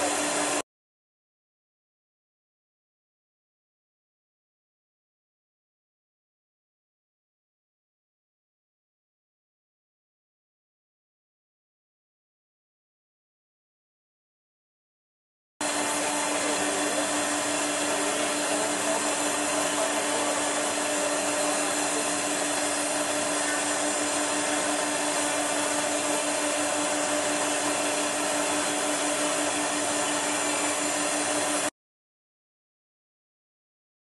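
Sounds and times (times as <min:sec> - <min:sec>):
milling spindle whining: 0:15.6 - 0:31.7.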